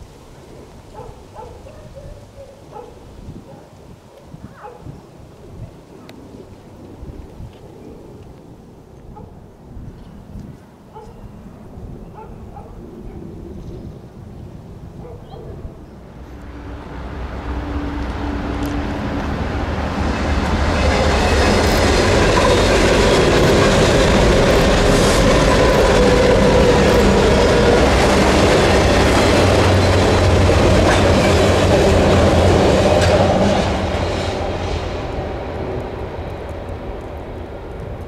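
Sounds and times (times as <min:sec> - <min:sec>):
diesel locomotive engines: 0:14.8 - 0:38.0
wheels clicking over rail joints: 0:18.0 - 0:38.0.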